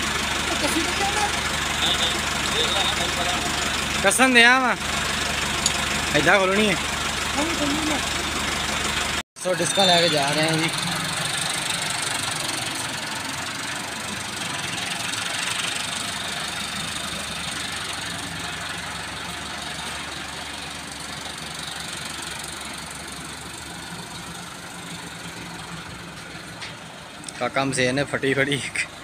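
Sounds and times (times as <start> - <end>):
tractor diesel engine running: 0.0 - 29.0.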